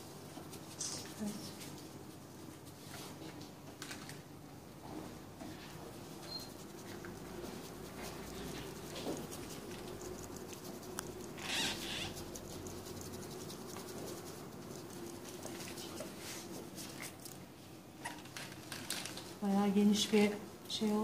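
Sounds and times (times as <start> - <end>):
paint tapping through plastic stencil: 6.2 - 17.3.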